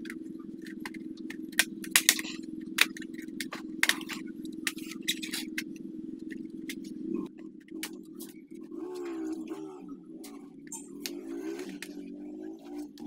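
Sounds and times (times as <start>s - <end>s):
plastic clips clicking and snapping: 0.0s - 5.7s
steady low hum: 0.0s - 13.0s.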